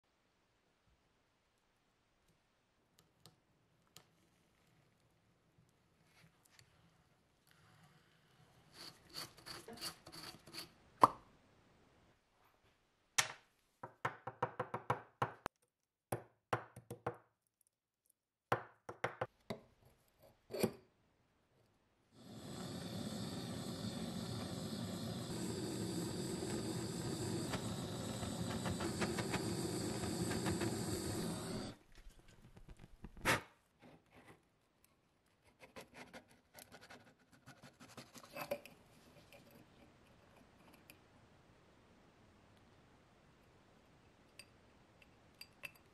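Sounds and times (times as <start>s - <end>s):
gas torch hissing: 22.2s - 31.8s.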